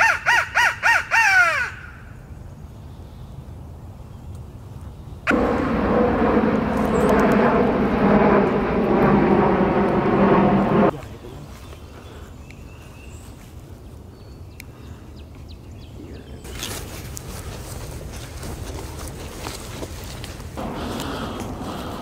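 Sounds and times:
steady engine-like drone: 0:05.3 - 0:11.1, 0:20.6 - 0:22.0.

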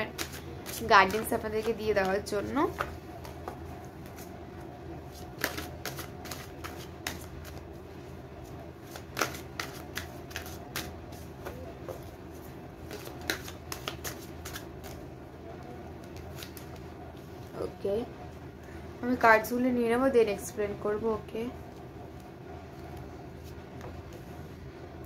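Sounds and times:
cards being shuffled: 0:00.0 - 0:04.3, 0:05.1 - 0:07.7, 0:08.8 - 0:15.0, 0:16.0 - 0:16.9
low steady hum: 0:00.0 - 0:25.0.

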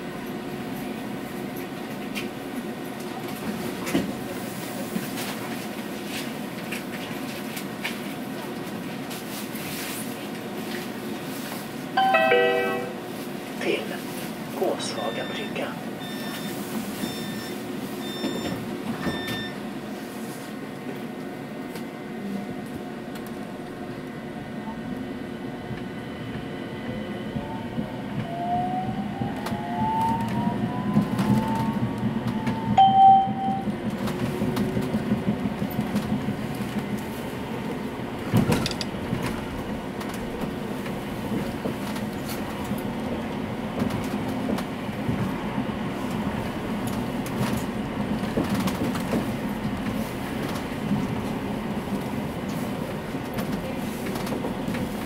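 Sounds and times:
tram wheels rumbling on track: 0:00.0 - 0:55.0
short electronic tone: 0:12.0 - 0:13.0, 0:32.8 - 0:33.7.

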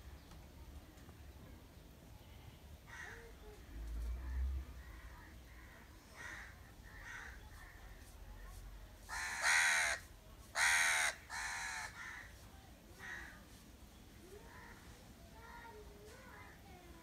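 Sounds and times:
crow cawing: 0:02.9 - 0:03.3, 0:04.8 - 0:07.5, 0:09.1 - 0:10.0, 0:10.6 - 0:12.4, 0:13.0 - 0:13.4.

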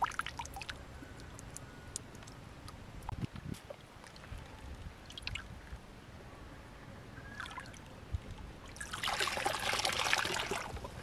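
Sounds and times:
water sloshing in basket: 0:08.7 - 0:11.0
water pouring through basket: 0:08.8 - 0:10.8.

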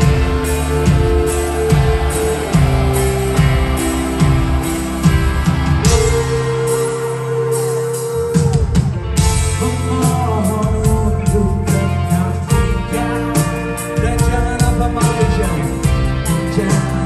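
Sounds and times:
drum kit beat: 0:00.0 - 0:17.0
electric guitars: 0:00.0 - 0:17.0
person singing: 0:05.6 - 0:17.0.

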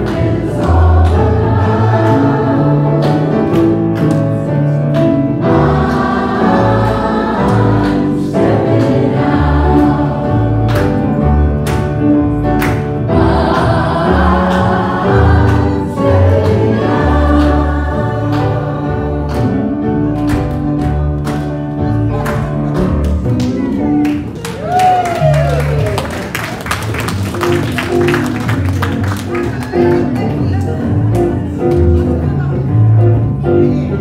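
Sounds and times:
congregation singing: 0:00.0 - 0:21.0.

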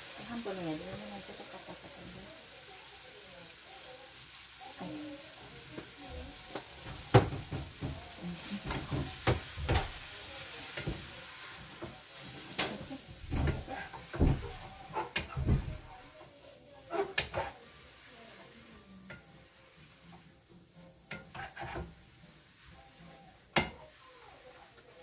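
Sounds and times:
food sizzling in a pan: 0:00.0 - 0:25.0
utensil knocking and scraping pan: 0:06.5 - 0:10.0, 0:12.5 - 0:15.9, 0:16.9 - 0:17.6, 0:21.0 - 0:22.1.

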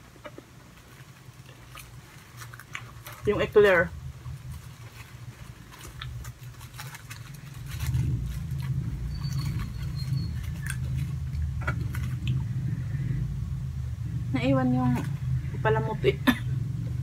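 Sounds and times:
low steady hum: 0:00.0 - 0:17.0
cardboard box crackling: 0:00.8 - 0:12.2.

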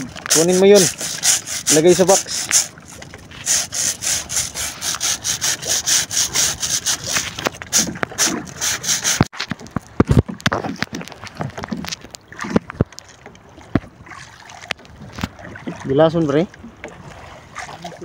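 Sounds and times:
mesh scraping against boat: 0:00.0 - 0:12.9.

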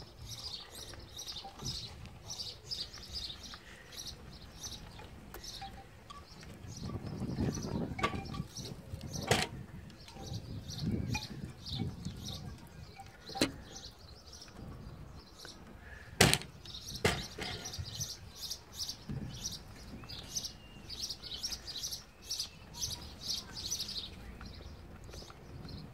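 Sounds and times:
sharp knocks: 0:16.2 - 0:17.7.

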